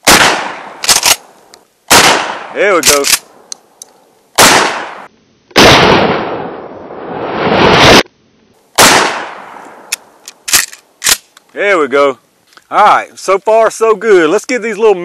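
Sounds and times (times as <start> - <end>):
shotgun shots: 0.0 - 1.2, 1.9 - 3.2, 4.4 - 6.6, 8.8 - 9.9.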